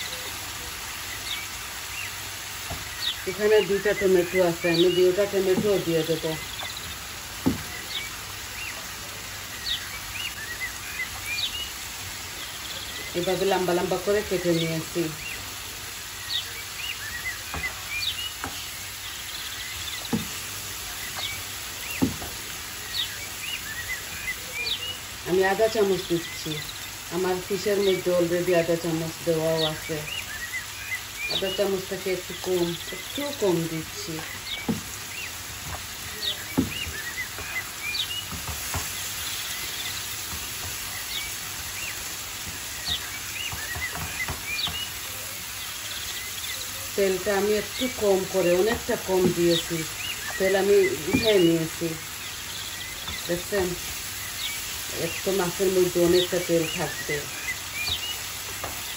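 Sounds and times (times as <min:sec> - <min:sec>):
onions frying in a pan: 0:00.0 - 0:58.9
wooden spatula knocking on pan: 0:07.4 - 0:07.9, 0:17.5 - 0:17.8, 0:18.4 - 0:18.7, 0:20.0 - 0:20.5, 0:22.0 - 0:22.5, 0:34.6 - 0:34.9, 0:35.6 - 0:39.0, 0:40.2 - 0:41.8, 0:42.4 - 0:44.9, 0:48.6 - 0:50.4.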